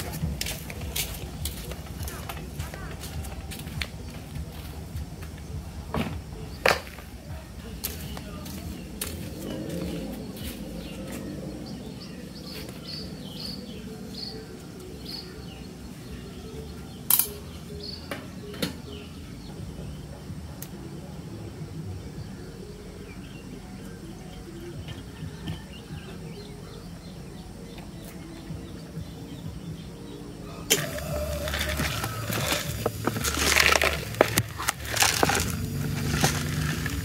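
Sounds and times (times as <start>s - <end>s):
steady low rumble: 30.9s - 37.0s.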